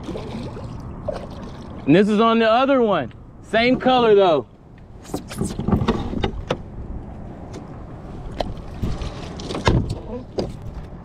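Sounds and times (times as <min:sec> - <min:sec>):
water splashing: 0:00.0 - 0:01.9.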